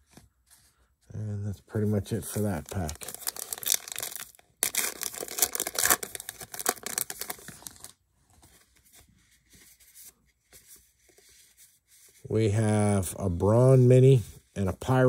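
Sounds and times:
cards rustling: 0:01.7 - 0:12.2
wrapper tearing and crinkling: 0:02.3 - 0:08.0.

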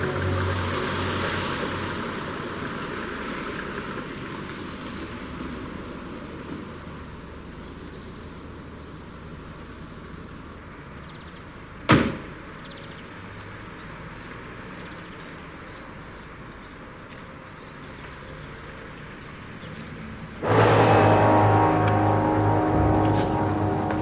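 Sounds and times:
sharp bang: 0:00.0 - 0:02.1, 0:20.4 - 0:24.0.

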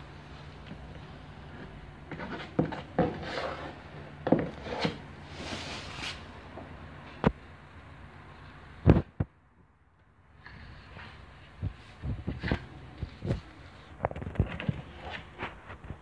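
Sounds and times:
putty knife scraping wall filler: 0:02.1 - 0:03.8.

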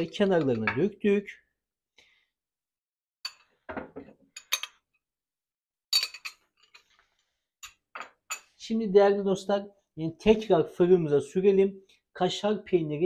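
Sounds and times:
metal spoon clinking glass bowl: 0:00.0 - 0:00.9, 0:04.4 - 0:04.8, 0:06.0 - 0:06.9.

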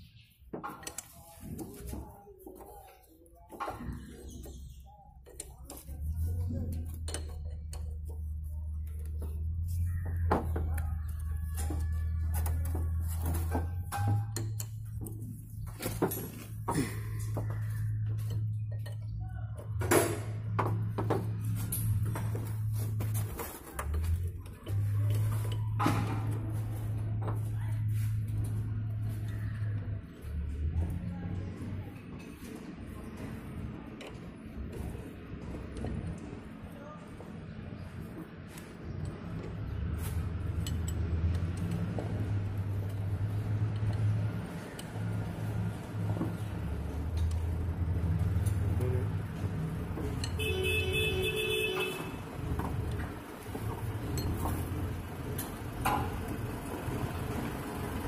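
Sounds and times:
steel parts clinking and knocking: 0:03.5 - 0:09.6, 0:10.3 - 0:17.4, 0:18.1 - 0:22.7, 0:40.2 - 0:45.1, 0:48.2 - 0:50.6, 0:52.1 - 0:56.3
low engine hum: 0:03.9 - 0:58.0.

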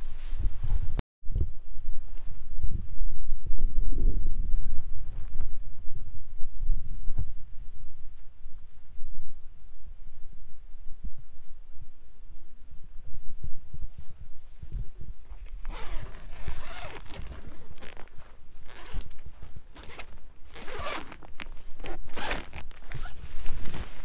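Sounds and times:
zipper being pulled: 0:15.3 - 0:24.0.

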